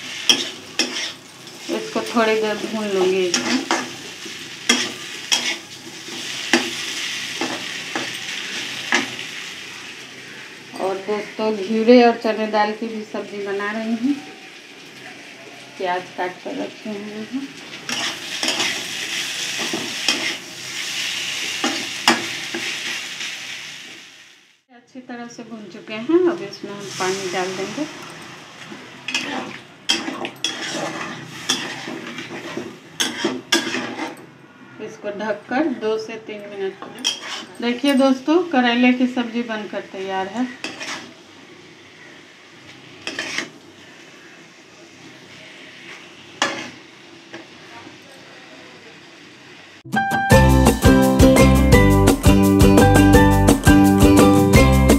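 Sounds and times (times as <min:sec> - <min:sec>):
vegetables sizzling in oil: 0:00.0 - 0:49.9
spatula scraping metal pan: 0:00.3 - 0:01.2, 0:04.7 - 0:06.7, 0:17.9 - 0:20.4, 0:29.1 - 0:34.2, 0:36.8 - 0:37.8, 0:40.4 - 0:41.2, 0:43.0 - 0:43.6, 0:45.9 - 0:46.8.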